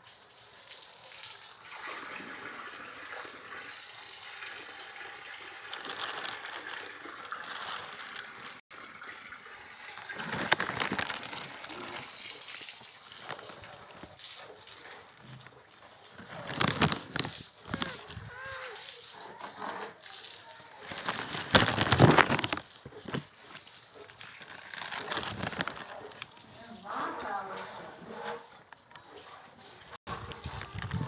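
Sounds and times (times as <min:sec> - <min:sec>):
plastic sheeting crinkling: 0:05.3 - 0:08.6, 0:09.9 - 0:27.6.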